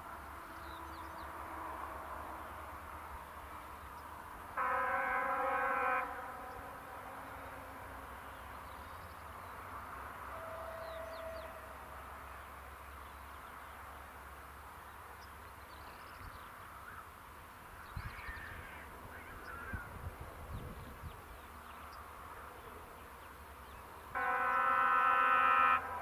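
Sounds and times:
faint bird calls: 17.8 - 20.0.

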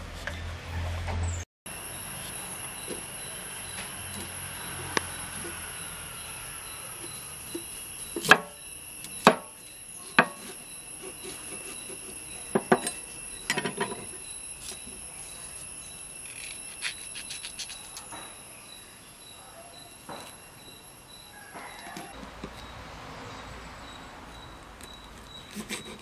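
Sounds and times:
high-pitched insect drone: 1.7 - 22.2
knives chopping on wooden boards: 7.0 - 12.9.

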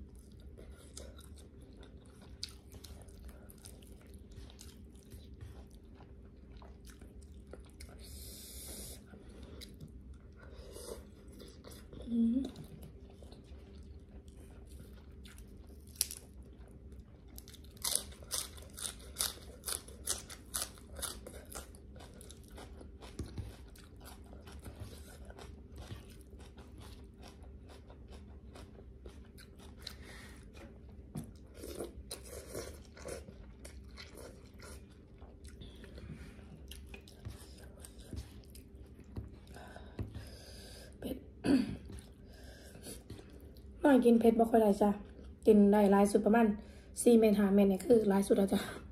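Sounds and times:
soft chewing: 0.0 - 46.9
crunchy food crunching: 14.7 - 30.0.

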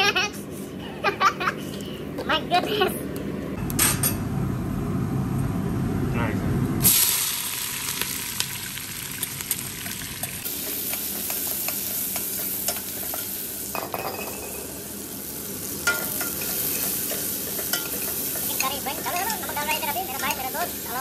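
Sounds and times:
onions sizzling in hot oil: 6.8 - 21.0.

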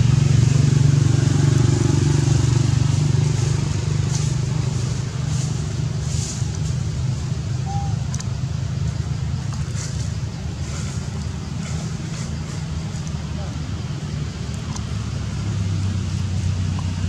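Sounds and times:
faint rustles: 4.0 - 8.2, 8.8 - 13.4.

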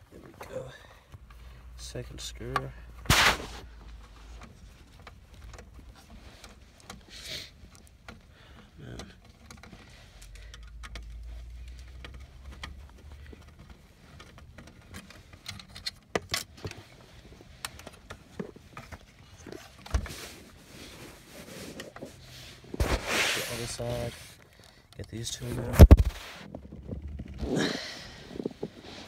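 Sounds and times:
screwdriver and screws rattling: 4.3 - 19.9.

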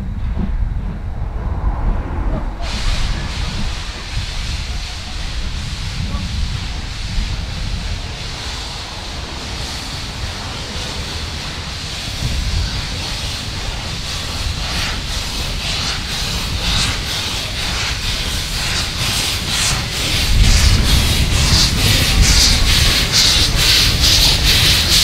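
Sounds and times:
steam locomotive exhaust chuffs: 2.5 - 25.0
steam hissing from drain cocks: 2.6 - 25.0.

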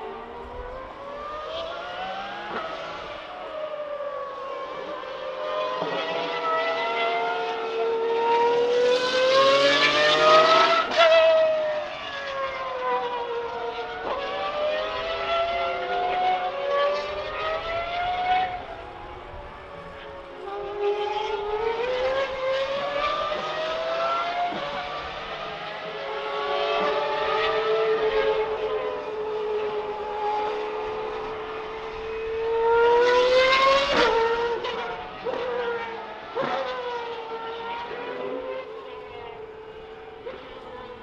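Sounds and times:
race car engines at full throttle: 0.0 - 41.0.

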